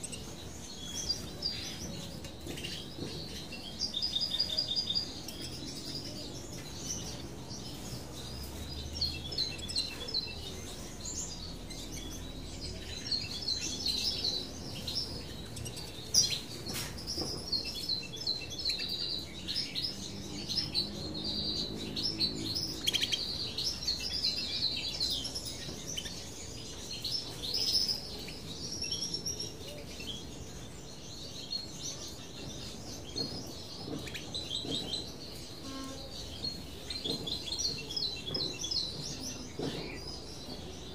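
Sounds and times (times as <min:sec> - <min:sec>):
finches chirping: 0:00.0 - 0:40.9.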